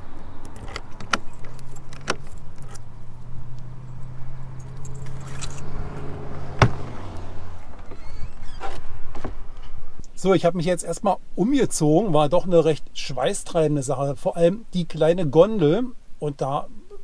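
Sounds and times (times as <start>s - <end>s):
keys jangling: 4.6s - 5.7s.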